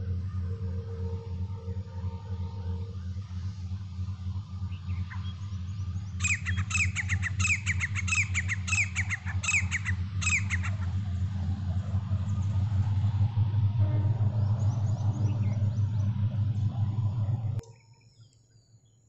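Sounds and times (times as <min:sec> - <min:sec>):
steady low hum: 0:00.0 - 0:19.0
francolin calling: 0:06.2 - 0:11.1.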